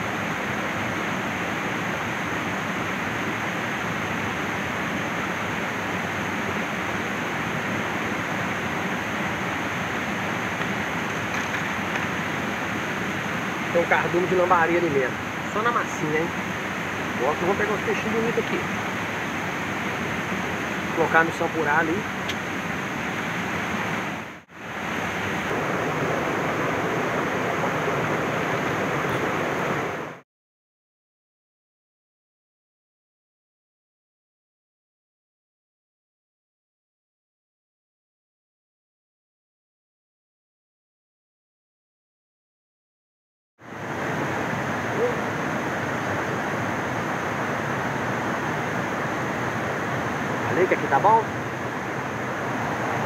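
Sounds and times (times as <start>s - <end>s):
stream over rocks: 0.0s - 30.2s, 43.6s - 53.0s.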